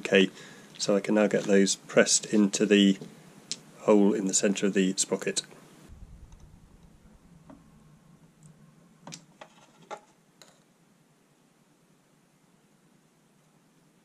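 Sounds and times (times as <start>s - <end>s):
low hum: 5.8s - 9.4s.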